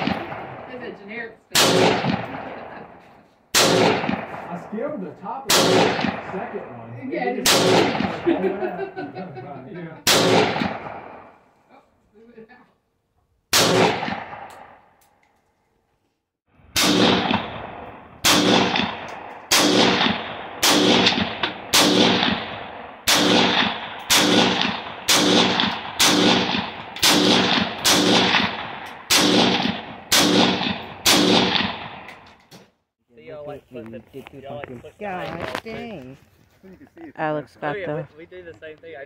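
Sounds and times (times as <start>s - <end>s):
gunshots with echo: 0.0s - 8.7s, 10.0s - 11.4s, 13.5s - 14.8s, 16.7s - 32.3s.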